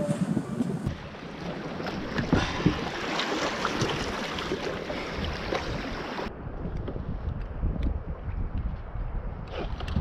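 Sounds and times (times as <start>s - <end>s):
water splashing against kayak: 0.6s - 7.0s.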